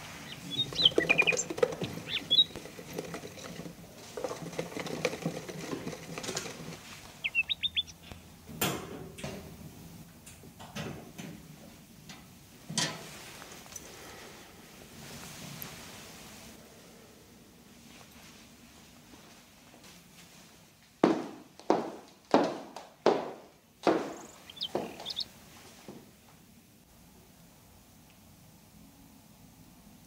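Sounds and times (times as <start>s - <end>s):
budgerigar chirping: 0.2s - 2.6s, 7.2s - 8.2s, 24.1s - 25.3s
sharp knocks: 22.4s - 25.0s.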